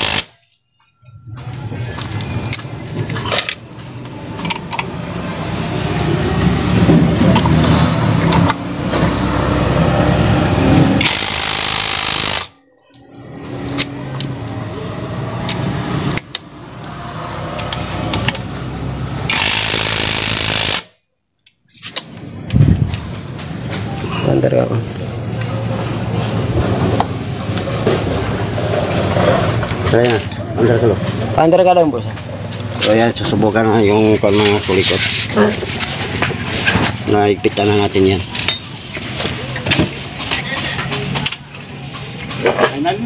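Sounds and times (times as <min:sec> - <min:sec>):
impact wrench hammering: 0:00.0 - 0:00.4, 0:11.0 - 0:12.6.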